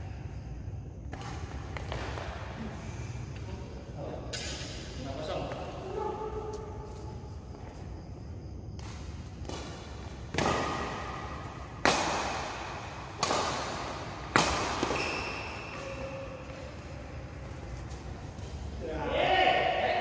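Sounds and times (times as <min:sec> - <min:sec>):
rackets striking shuttlecock: 0:04.3 - 0:04.9, 0:08.8 - 0:16.7.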